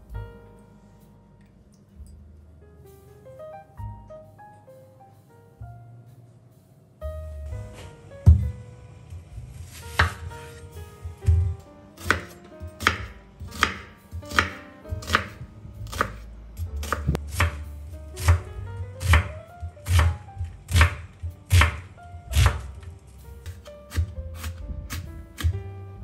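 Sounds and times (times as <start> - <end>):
faint background music: 0.0 - 26.0
knife chopping onion on board: 9.7 - 10.6, 11.2 - 22.8, 23.5 - 25.6.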